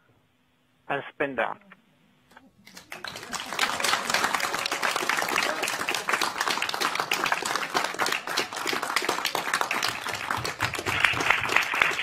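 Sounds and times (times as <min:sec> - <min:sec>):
crowd applauding: 0:02.6 - 0:12.0.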